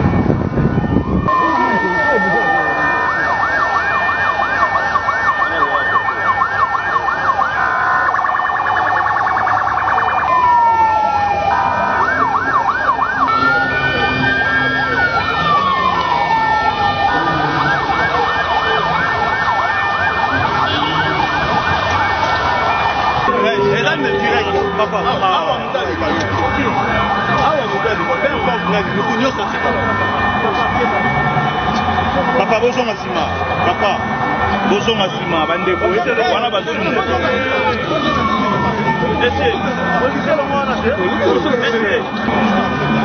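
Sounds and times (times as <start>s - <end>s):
vehicle sirens: 0.0s - 43.0s
steady high tone: 22.7s - 36.6s.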